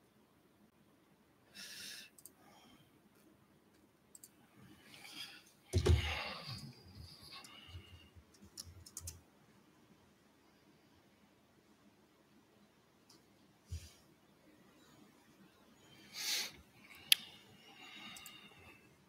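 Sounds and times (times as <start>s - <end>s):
thump and rustle at podium: 5.7s - 6.6s.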